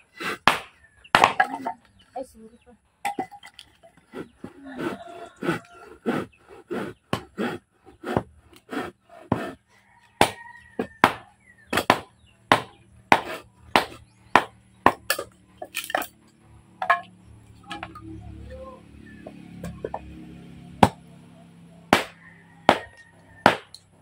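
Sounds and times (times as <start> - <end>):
knives chopping firewood: 0.2 - 2.0, 3.1 - 9.6, 10.2 - 16.2, 20.8 - 21.0, 21.9 - 24.0.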